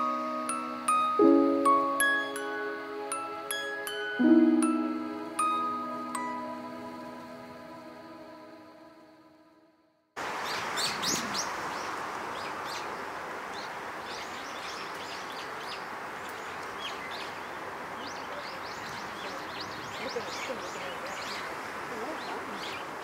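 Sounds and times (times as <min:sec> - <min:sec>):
chiming music notes: 0:00.0 - 0:09.6
small birds chirping: 0:10.4 - 0:23.0.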